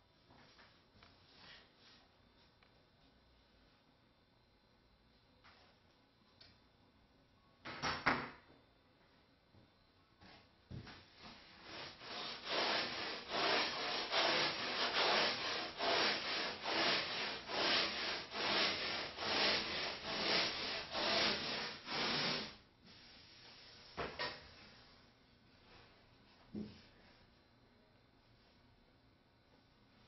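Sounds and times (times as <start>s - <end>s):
sandpaper scraping foam: 11.6s - 22.6s.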